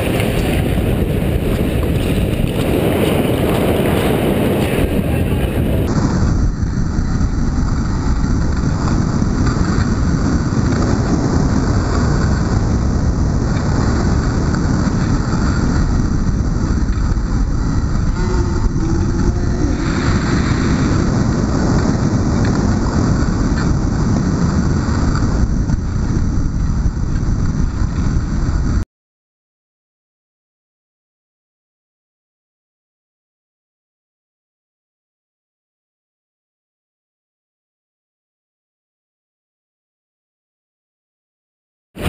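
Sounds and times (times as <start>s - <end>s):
wind noise on microphone: 0.0s - 28.8s.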